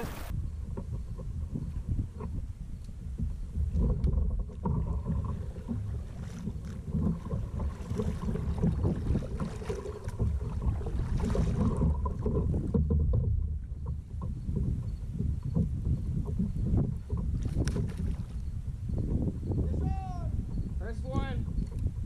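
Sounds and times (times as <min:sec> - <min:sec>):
water rushing and splashing: 0:00.0 - 0:00.4, 0:03.8 - 0:14.2
wind rumble on microphone: 0:00.0 - 0:22.0.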